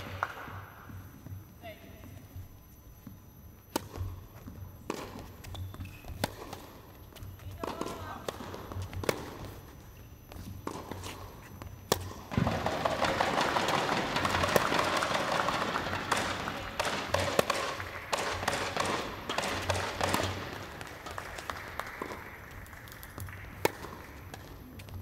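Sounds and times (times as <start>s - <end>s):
footsteps on court: 0.0s - 25.0s
tennis ball strikes: 4.8s - 6.7s, 7.5s - 9.4s, 11.8s - 22.2s, 22.9s - 24.5s
spectators applauding: 12.4s - 18.8s, 20.4s - 24.2s.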